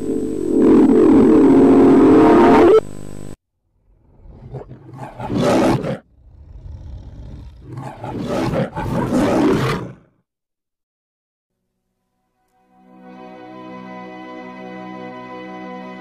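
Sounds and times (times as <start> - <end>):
reversed lion roar: 3.8 - 10.2.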